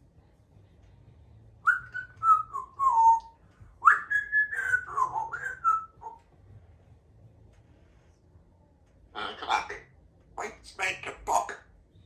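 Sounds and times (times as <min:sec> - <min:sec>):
parrot whistling: 0:01.6 - 0:06.2.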